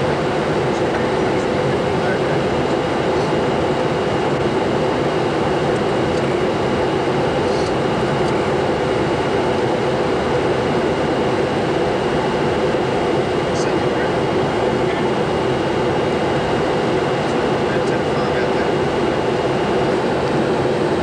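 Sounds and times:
air-conditioning flow: 0:00.0 - 0:21.0.

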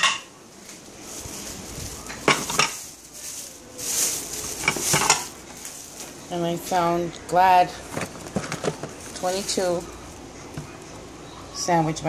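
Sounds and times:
rustling: 0:00.0 - 0:07.0, 0:07.6 - 0:11.4
items knocking and clinking: 0:02.1 - 0:06.2, 0:07.7 - 0:09.8.

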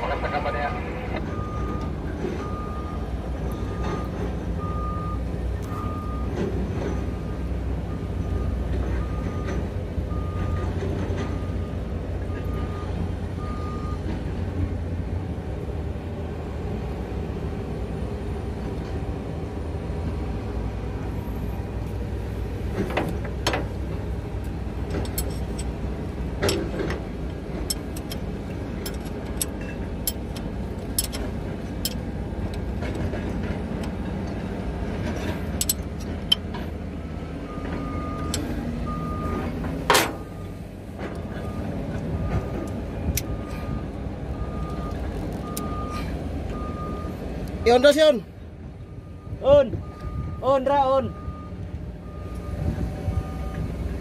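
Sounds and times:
sharp metallic clicks and taps: 0:24.4 - 0:25.8, 0:26.4 - 0:34.4, 0:35.5 - 0:36.6, 0:38.2 - 0:38.5.

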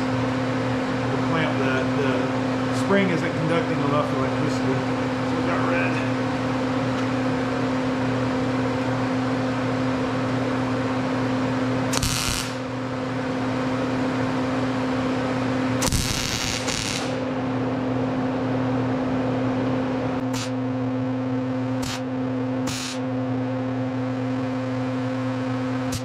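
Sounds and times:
steady electrical hum: 0:00.0 - 0:26.0
welding arc bursts: 0:11.9 - 0:12.7, 0:15.8 - 0:17.3, 0:20.2 - 0:20.6, 0:21.8 - 0:22.1, 0:22.7 - 0:23.0.

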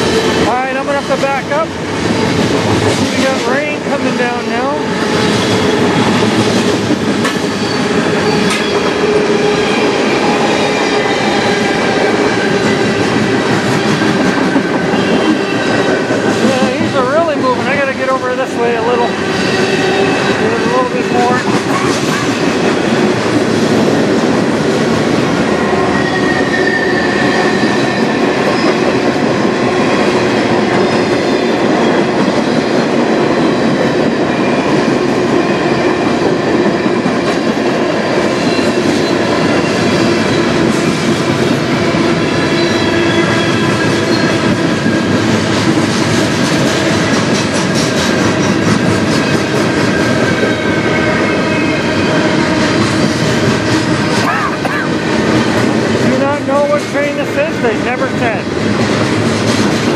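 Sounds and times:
train wheels clattering on rails: 0:00.0 - 0:59.9.

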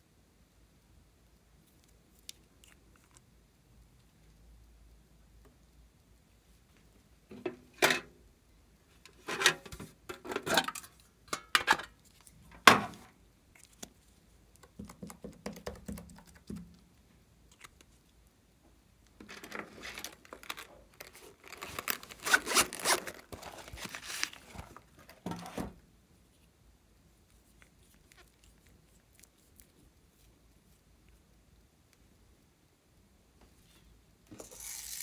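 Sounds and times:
craft items rustling and scraping: 0:19.2 - 0:25.8
zipper being pulled open: 0:22.1 - 0:23.2.

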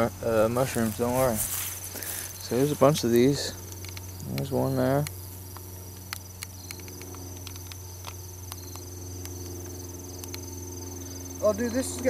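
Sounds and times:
insects trilling: 0:00.0 - 0:12.0
low steady hum: 0:00.0 - 0:12.0
faint ticks: 0:03.0 - 0:10.5.

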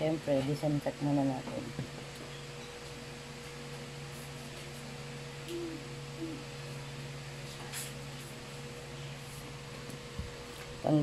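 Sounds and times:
low electrical hum: 0:00.0 - 0:11.0
short low hoot-like tones: 0:05.4 - 0:06.6.

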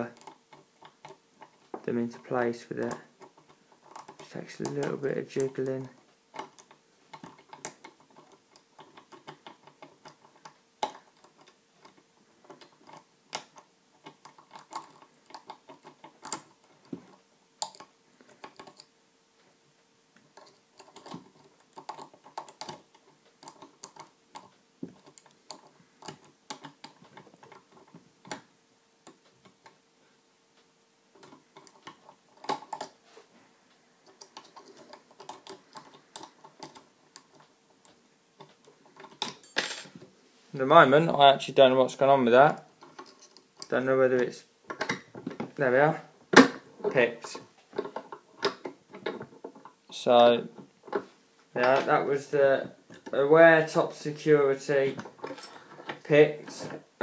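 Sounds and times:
lock picking metallic clicks: 0:06.4 - 0:16.6, 0:20.4 - 0:29.8, 0:34.0 - 0:39.9.

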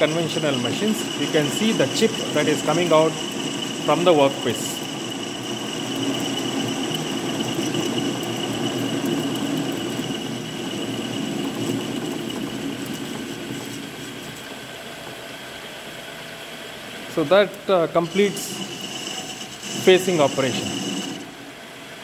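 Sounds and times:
tool cutting metal: 0:00.0 - 0:13.1, 0:17.9 - 0:21.3
lathe humming with high whine: 0:00.0 - 0:22.0.

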